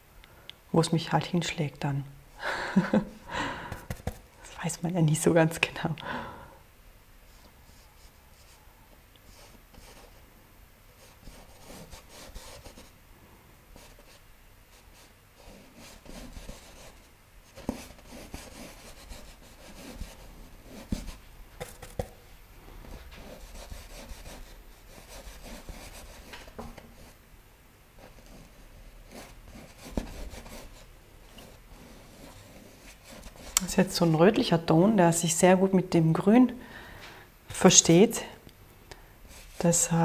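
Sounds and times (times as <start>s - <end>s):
paintbrush scratching on canvas: 11.0s - 12.9s, 13.8s - 22.2s, 22.8s - 27.2s, 28.0s - 34.1s.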